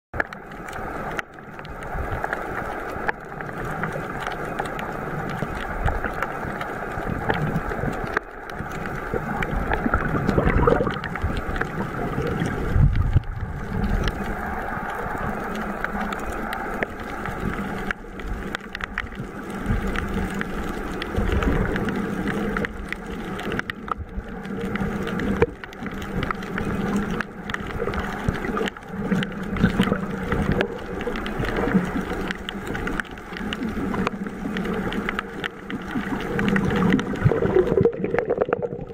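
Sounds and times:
muffled underwater churning: 0.1s - 38.9s
underwater knocks: 9.7s - 11.8s.

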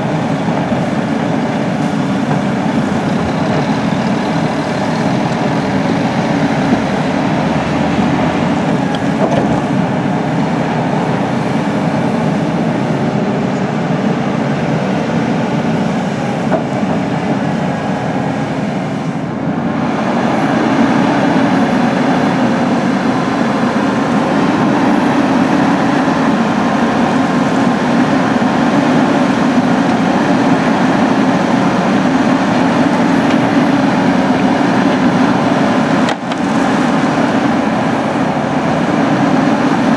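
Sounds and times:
excavator diesel engine and hydraulics: 0.0s - 39.9s.

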